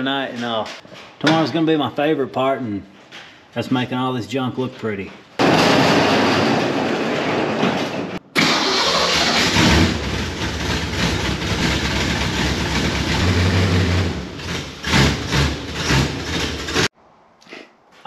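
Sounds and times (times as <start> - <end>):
truck engine running with revs: 8.4 - 16.9.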